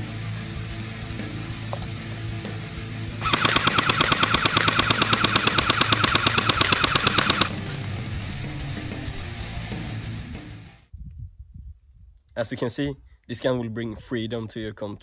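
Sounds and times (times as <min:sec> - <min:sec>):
airsoft gun full-auto burst: 0:03.2 - 0:07.6.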